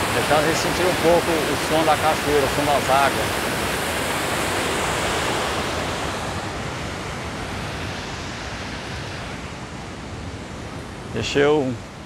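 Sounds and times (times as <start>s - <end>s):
waterfall rushing: 0.0s - 7.9s.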